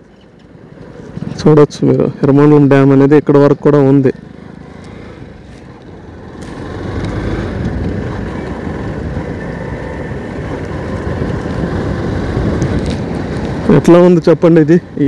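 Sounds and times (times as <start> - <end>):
motorcycle engine riding: 0.0 - 15.0
wind noise: 5.2 - 14.0.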